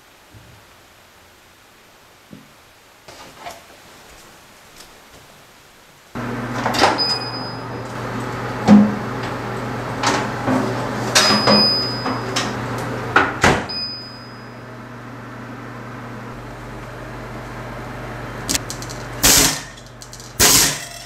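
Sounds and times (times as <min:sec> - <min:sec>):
oven humming: 0:02.3 - 0:21.0
oven door shutting: 0:06.2 - 0:14.0
oven door opening: 0:06.4 - 0:14.1
metal pan clattering on rack: 0:18.6 - 0:21.0.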